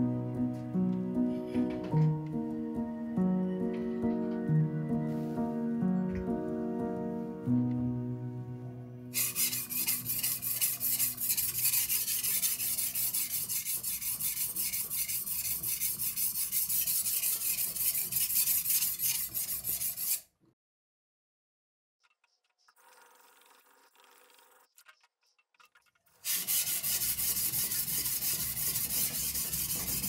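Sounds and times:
background music: 0:00.0 - 0:11.6
blade scraping on whetstone: 0:09.2 - 0:20.3, 0:26.2 - 0:30.0.

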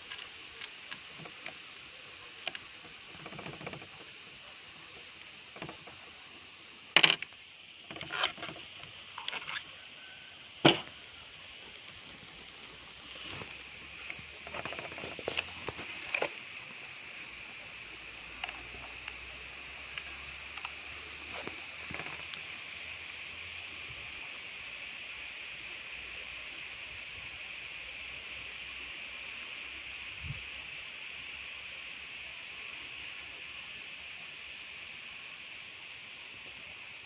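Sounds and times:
steady high hiss: 0:00.0 - 0:37.0
replica rifle clicks and knocks: 0:07.0 - 0:07.3.

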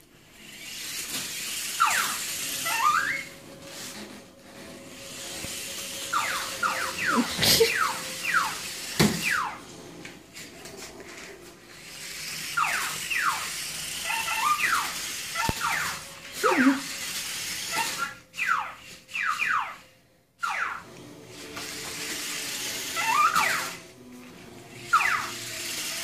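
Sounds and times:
parrot squeaking calls: 0:01.8 - 0:03.4, 0:06.1 - 0:09.6, 0:12.5 - 0:16.8, 0:17.7 - 0:20.8, 0:23.0 - 0:23.7, 0:24.9 - 0:25.5.

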